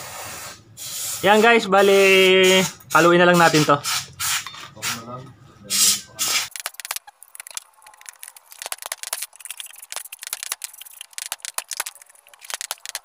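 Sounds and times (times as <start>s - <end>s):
metal clicks and rattles: 6.5s - 13.0s.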